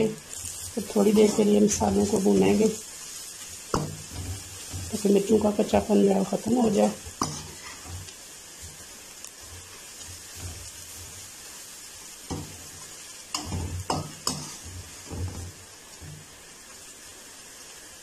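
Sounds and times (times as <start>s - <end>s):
onions sizzling in oil: 0.0s - 18.0s
metal spoon scraping a pan: 0.3s - 2.8s, 3.6s - 11.3s, 12.3s - 16.2s.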